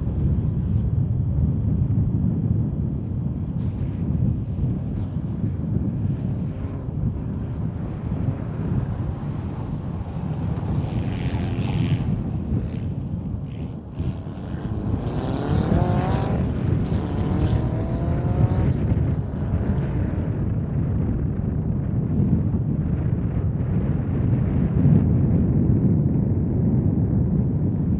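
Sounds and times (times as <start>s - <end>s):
wind buffeting microphone: 0.0s - 27.9s
rally car engine accelerating: 14.0s - 20.4s.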